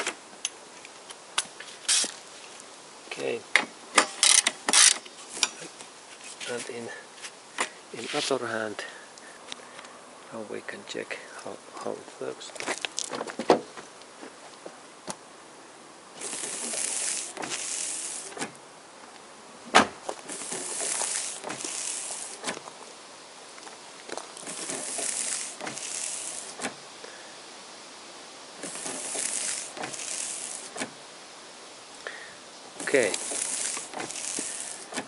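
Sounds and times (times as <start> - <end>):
wiper blades swishing on glass: 28.6 - 30.9, 32.8 - 35.0.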